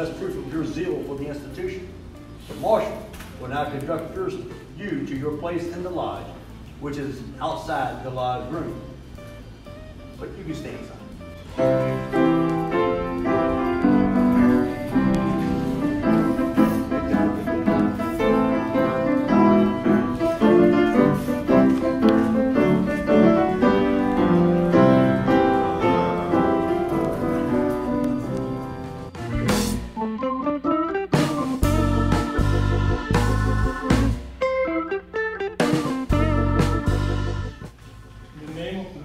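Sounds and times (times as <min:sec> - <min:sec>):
instrumental keyboard music: 0:08.2 - 0:38.3.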